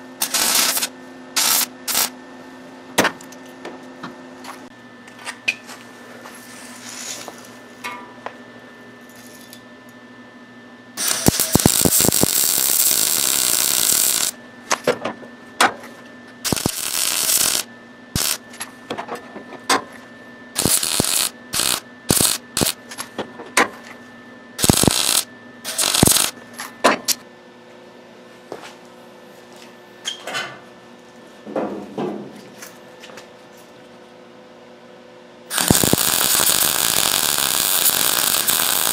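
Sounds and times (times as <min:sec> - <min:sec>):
welder arcing: 0:00.0 - 0:02.2, 0:06.8 - 0:07.3, 0:11.0 - 0:14.4, 0:16.4 - 0:18.4, 0:20.6 - 0:22.8, 0:24.6 - 0:26.4, 0:35.5 - 0:38.9.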